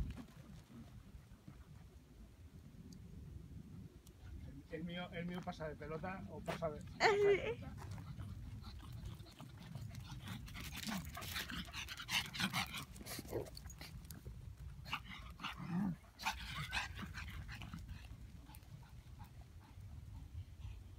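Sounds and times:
dogs panting: 5.3s - 20.9s
dogs low vocal sounds: 6.4s - 20.9s
paws scuffing on dirt: 7.6s - 11.7s.

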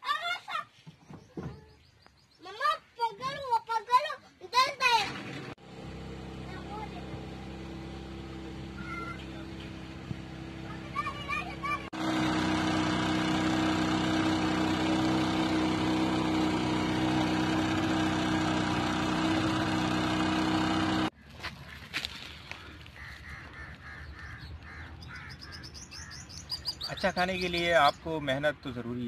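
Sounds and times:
motorboat engine droning: 5.1s - 21.1s.

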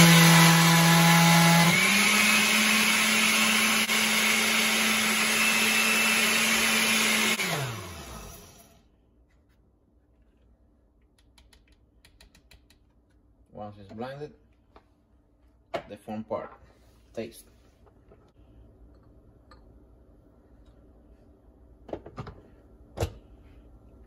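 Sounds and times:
blender motor whining: 0.0s - 8.8s.

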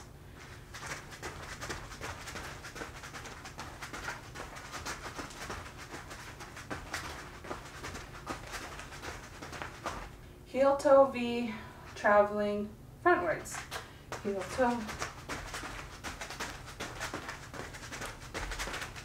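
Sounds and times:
low steady hum: 0.0s - 19.0s
boots tapping on a foam mat: 0.8s - 10.2s, 13.6s - 19.0s.

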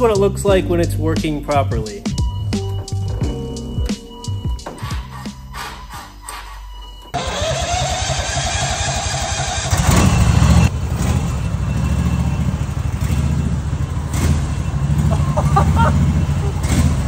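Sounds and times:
riding lawn mower engine running: 7.1s - 17.0s.

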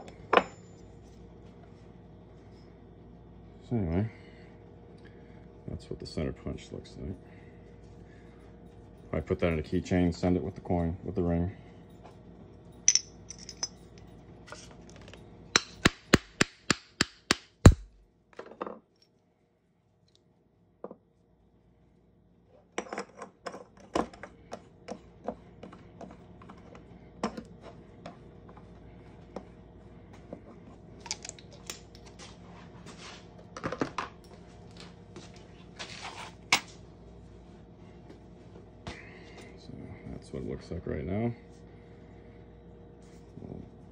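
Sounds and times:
metal clinks and clatter: 11.8s - 15.8s.

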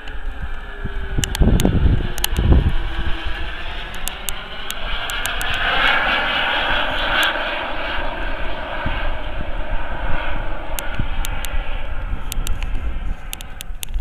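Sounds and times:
model jet turbine whining: 0.0s - 14.0s
wind gusts on microphone: 0.0s - 14.0s
sharp clicks: 1.2s - 2.8s, 3.9s - 5.6s, 10.8s - 14.0s.

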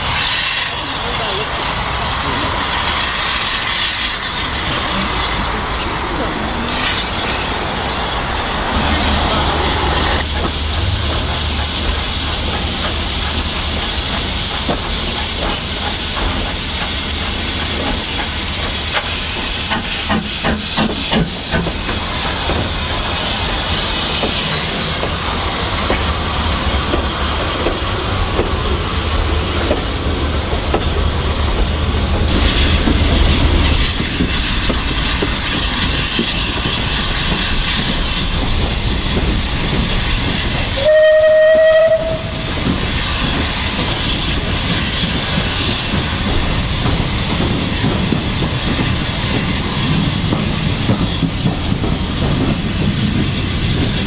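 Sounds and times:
steam hissing: 0.0s - 54.0s
train wheels clicking over rail joints: 8.7s - 54.0s
steam whistle: 40.8s - 42.5s.

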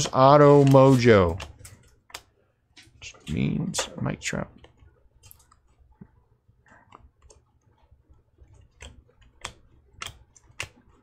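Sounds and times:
cards clicking and snapping: 8.4s - 11.0s.

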